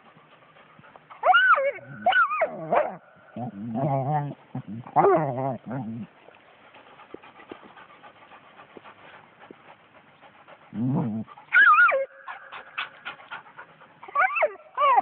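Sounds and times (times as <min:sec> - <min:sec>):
dog growling: 0:01.8 - 0:06.1, 0:10.7 - 0:11.4
dog whining: 0:14.0 - 0:15.0.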